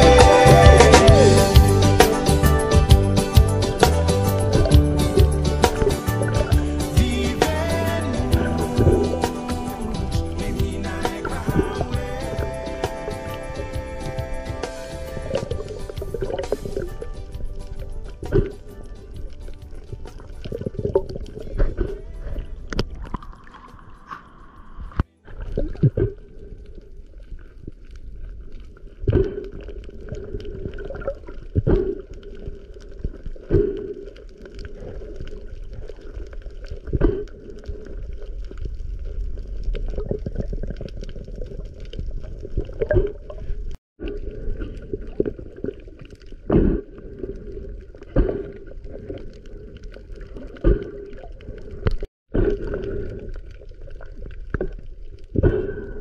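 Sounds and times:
water gurgling and sloshing: 1.1s - 56.0s.

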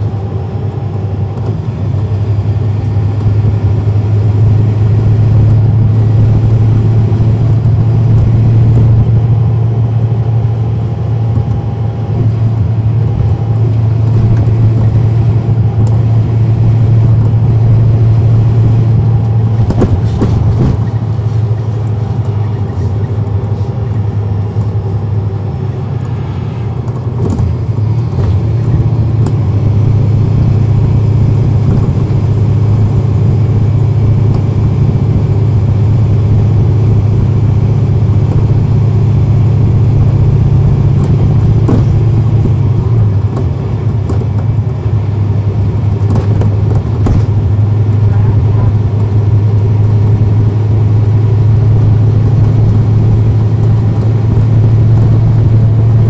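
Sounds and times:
bus diesel engine running: 0.0s - 56.0s.

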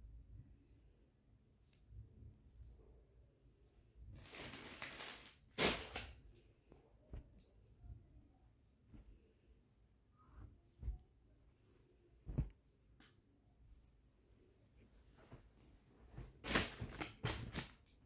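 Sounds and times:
cloth rustling: 10.2s - 12.7s, 13.7s - 17.8s.

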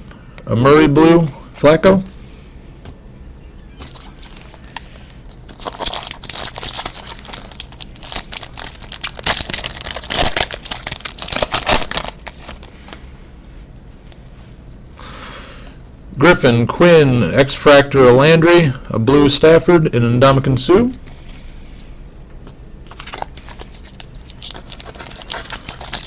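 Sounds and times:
foil wrapper crinkling and tearing: 3.8s - 13.0s, 22.9s - 26.0s
cards rustling: 3.8s - 13.1s, 22.9s - 26.0s.

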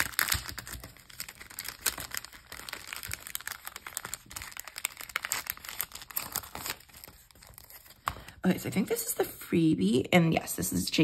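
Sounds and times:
plastic sleeve crinkling: 0.0s - 8.3s.

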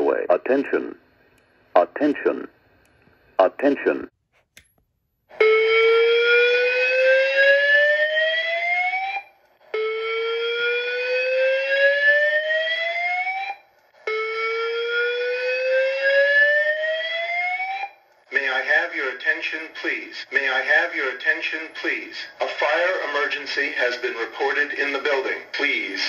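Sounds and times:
fire alarm whoop tone: 5.4s - 18.0s.

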